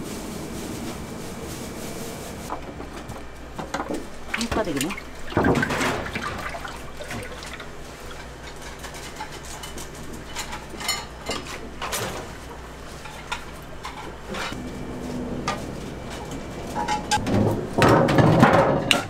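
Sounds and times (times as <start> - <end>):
oil pouring and splashing: 4.2 - 8.2.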